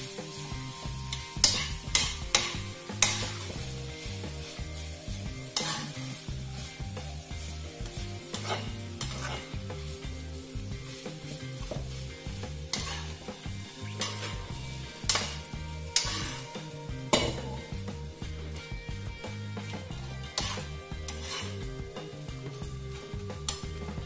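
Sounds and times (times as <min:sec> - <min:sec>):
metal spatula scraping a pan: 0:00.0 - 0:06.7, 0:07.4 - 0:09.9, 0:12.7 - 0:17.7, 0:20.1 - 0:22.0
rice sizzling in a wok: 0:00.0 - 0:24.0.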